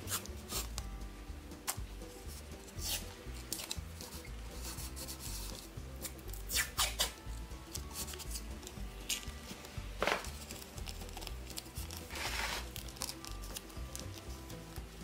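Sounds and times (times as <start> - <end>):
masking tape ripping: 0.0 - 0.8, 2.7 - 7.2, 10.0 - 14.2
soft background music: 0.0 - 15.0.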